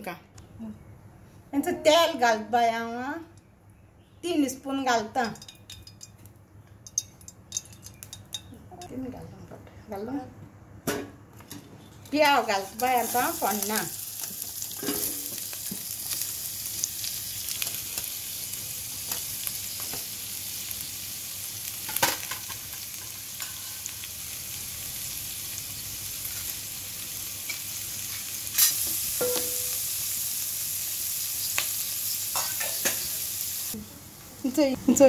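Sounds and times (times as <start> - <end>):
onion sizzling in oil: 12.1 - 35.0
spoon knocking against pan: 29.2 - 29.7.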